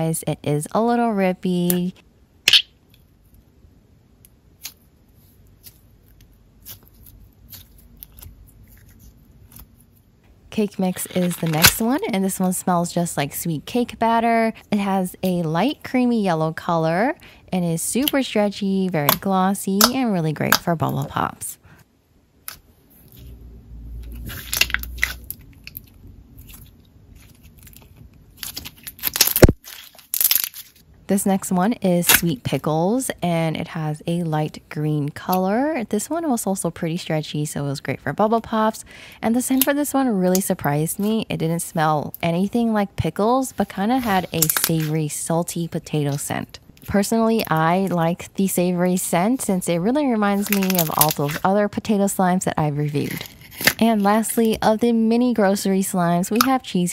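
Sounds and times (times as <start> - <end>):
slime crackling and clicking: 50.4 - 51.4.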